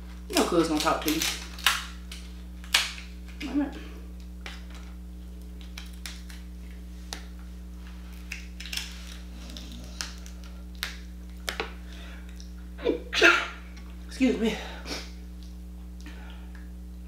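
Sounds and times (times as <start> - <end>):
crab shell cracking: 0.6 - 3.5, 4.2 - 7.4, 8.1 - 12.6
low hum: 1.2 - 17.0.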